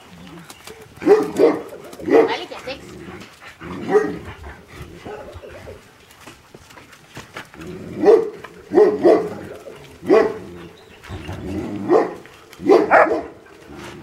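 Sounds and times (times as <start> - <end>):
dogs barking: 0.8 - 5.8, 7.8 - 13.7.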